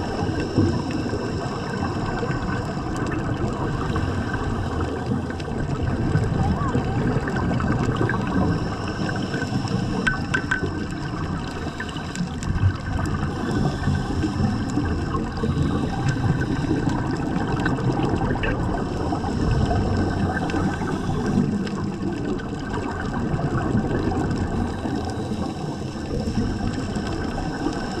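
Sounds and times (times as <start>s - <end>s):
muffled underwater rumble: 0.0s - 28.0s
water gurgling: 0.0s - 28.0s.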